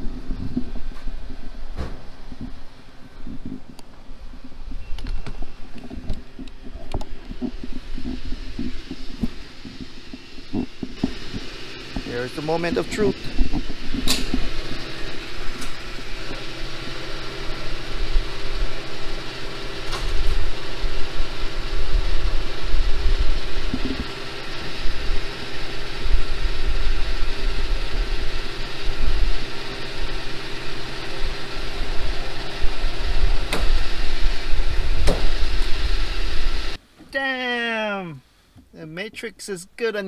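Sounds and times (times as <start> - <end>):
fuel pump humming: 0.0 - 36.8.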